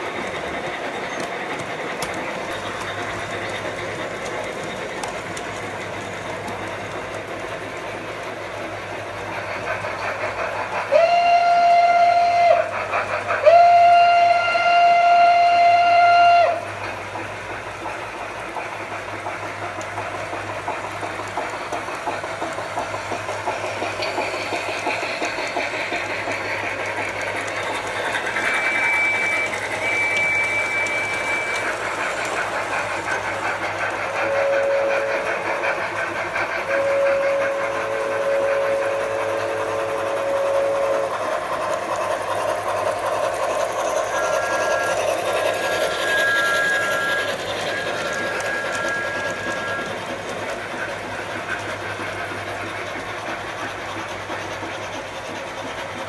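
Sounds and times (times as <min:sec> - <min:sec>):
model train wheels rattling: 0:00.0 - 0:56.0
high train whistle: 0:10.8 - 0:16.7, 0:28.4 - 0:32.0, 0:33.8 - 0:35.8, 0:36.6 - 0:41.4, 0:44.0 - 0:50.6
lower multi-note train whistle: 0:10.8 - 0:16.7, 0:28.4 - 0:32.1, 0:33.7 - 0:35.8, 0:36.5 - 0:41.5, 0:43.9 - 0:50.9.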